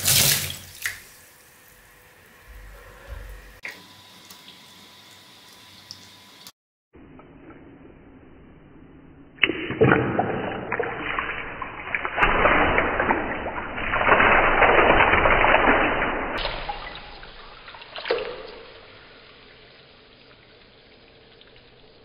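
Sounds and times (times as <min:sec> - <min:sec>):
water gushing into a plastic tub: 0:00.0 - 0:01.2, 0:10.3 - 0:19.6.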